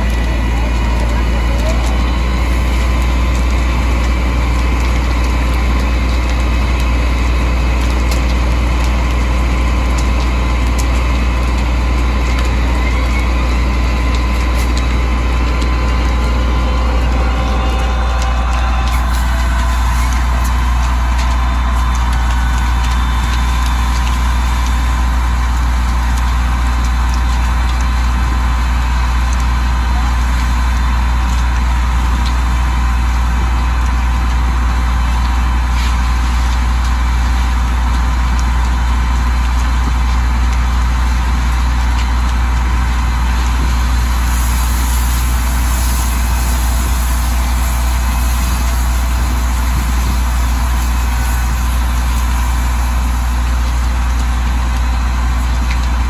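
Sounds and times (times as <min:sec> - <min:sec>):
fire engine idling: 0:00.0 - 0:56.0.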